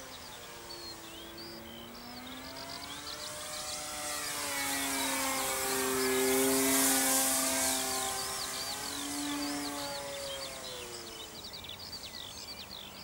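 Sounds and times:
model plane motor whine: 0:00.0 - 0:12.1
birds chirping: 0:00.0 - 0:13.0.

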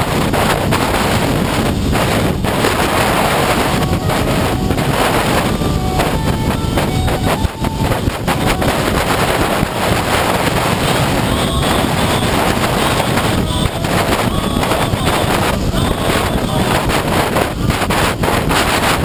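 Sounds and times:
motorcycle engine running: 0:00.0 - 0:19.0
wind rushing over microphone: 0:00.0 - 0:19.0.

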